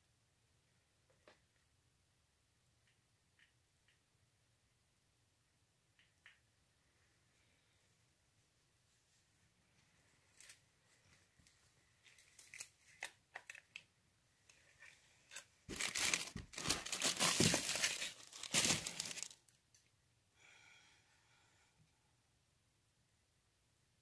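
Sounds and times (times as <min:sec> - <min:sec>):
plastic wrapping crinkling: 0:10.3 - 0:13.8, 0:15.3 - 0:19.6.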